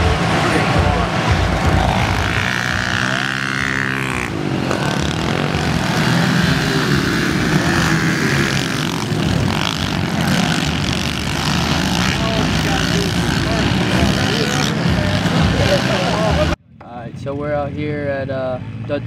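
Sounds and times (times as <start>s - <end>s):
small motorbike engines revving: 0.0s - 16.6s.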